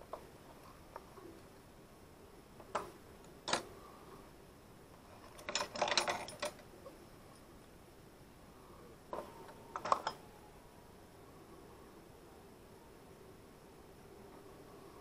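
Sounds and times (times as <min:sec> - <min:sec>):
plastic parts clicking: 0:02.6 - 0:03.7, 0:05.0 - 0:06.7, 0:09.1 - 0:10.2
parts clattering: 0:05.0 - 0:06.7, 0:09.1 - 0:10.4.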